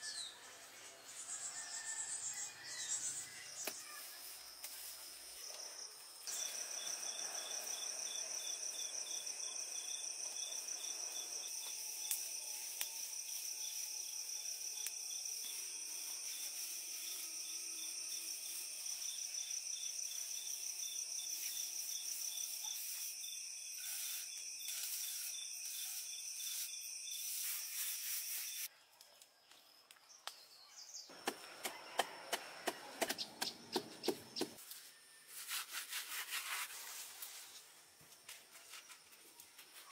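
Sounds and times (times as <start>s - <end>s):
insects chirring: 3.5s - 28.7s, 31.0s - 35.2s
stick pounding leaves on concrete: 31.1s - 34.6s.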